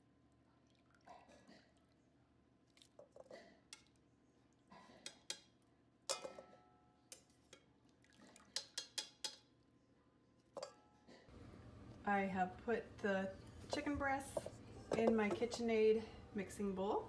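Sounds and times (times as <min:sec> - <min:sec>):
metal tongs clicking and knocking: 0:05.0 - 0:05.5.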